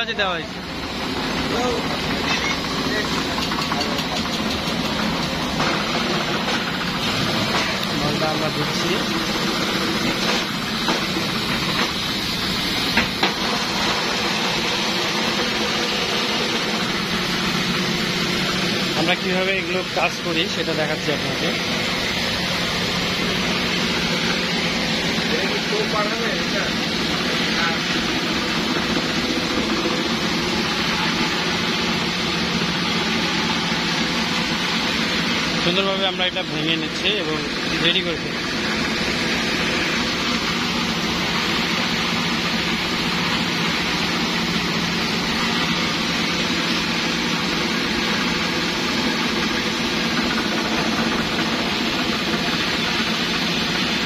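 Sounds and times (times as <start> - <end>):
steady machine drone: 0.0 - 54.0.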